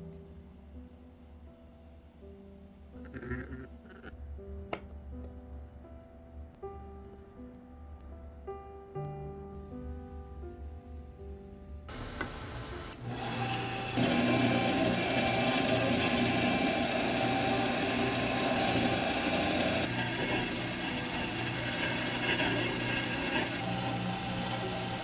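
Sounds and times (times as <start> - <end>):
bandsaw cutting wood: 13.0 - 25.0.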